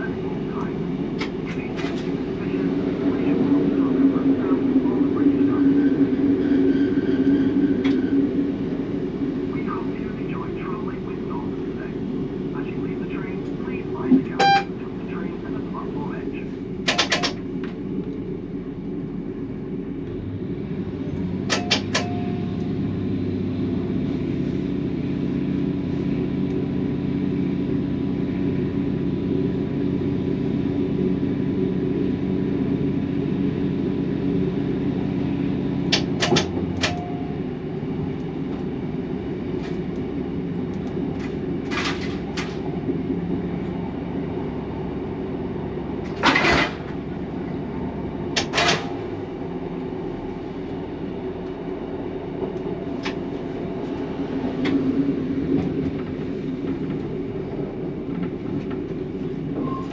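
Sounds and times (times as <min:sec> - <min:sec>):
diesel train engine running: 0:00.0 - 0:59.9
rumble of wheels on track: 0:00.0 - 0:59.9
sharp clicks and knocks: 0:16.8 - 0:17.8, 0:21.5 - 0:22.2, 0:35.9 - 0:37.2.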